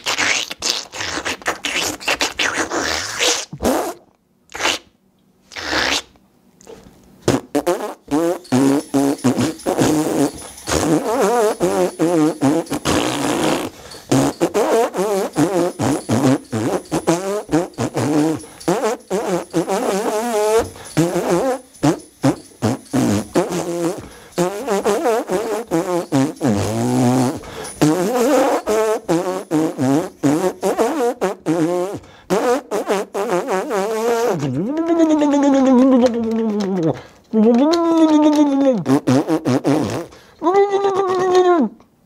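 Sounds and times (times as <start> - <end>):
fart noise melody: 0.0 - 4.9, 5.5 - 6.2, 7.2 - 36.8, 38.7 - 40.2
clacking percussion: 7.3 - 40.2.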